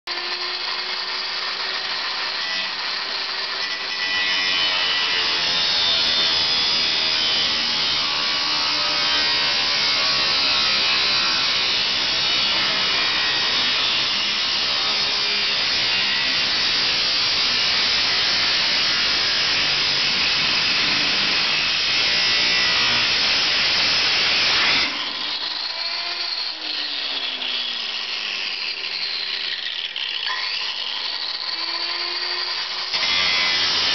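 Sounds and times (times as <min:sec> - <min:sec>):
angle grinder cutting steel: 0:00.1 - 0:33.9
grinder whine winding down: 0:22.6 - 0:33.9.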